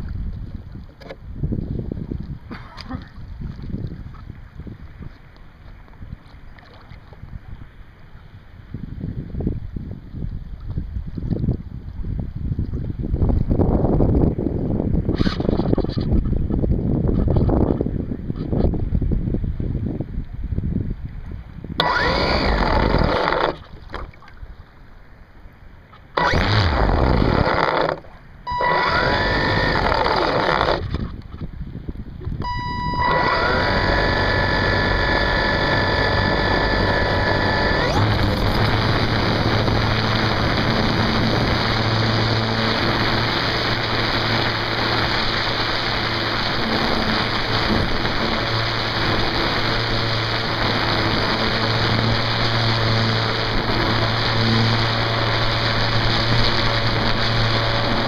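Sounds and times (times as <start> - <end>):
wind on microphone: 0.0 - 24.6, 26.0 - 58.0
model plane motor whining: 21.8 - 23.7, 26.1 - 31.0, 32.4 - 58.0
water rushing past: 32.4 - 58.0.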